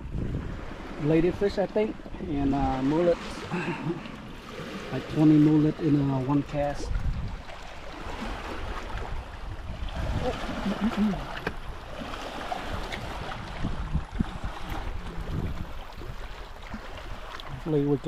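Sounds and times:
water sloshing and splashing: 0.0s - 18.0s
low uneven rumble: 9.2s - 18.0s.

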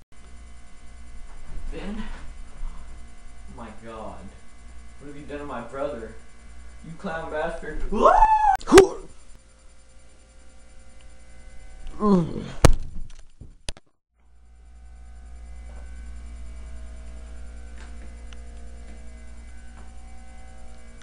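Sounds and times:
low hum with faint held tones: 0.2s - 13.2s, 14.2s - 21.0s
person's short falling cry: 7.9s - 9.1s.

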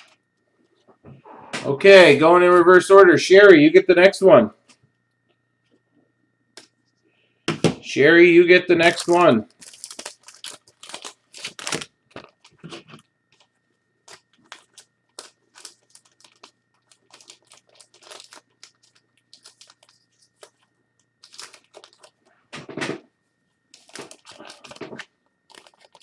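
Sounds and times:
low electrical hum: 0.0s - 26.0s
faint clicks and crinkles: 9.4s - 22.8s, 23.4s - 26.0s.

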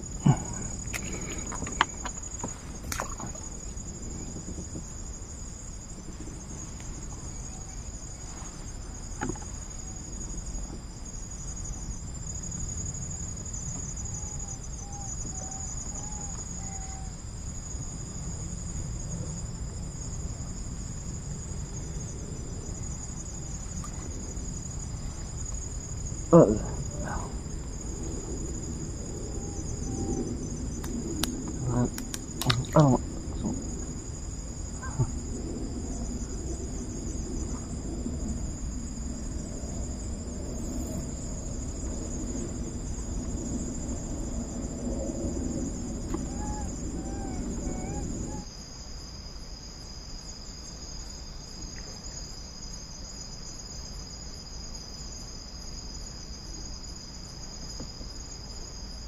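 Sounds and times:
insects shrilling: 40.3s - 42.5s, 45.6s - 48.6s.

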